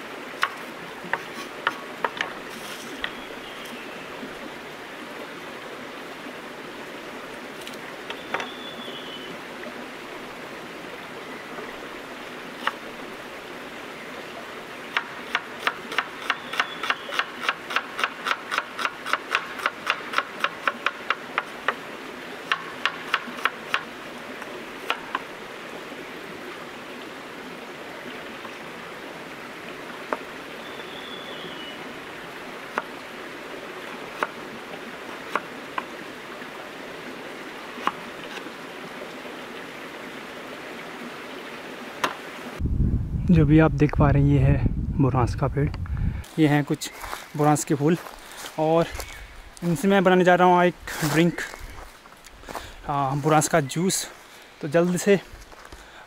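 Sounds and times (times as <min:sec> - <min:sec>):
stream rushing: 0:00.0 - 0:42.6, 0:46.0 - 0:56.0.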